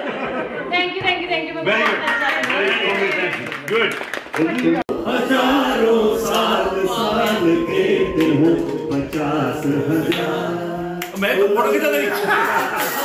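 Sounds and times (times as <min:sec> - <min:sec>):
man singing into microphone: 0:04.9 - 0:11.9.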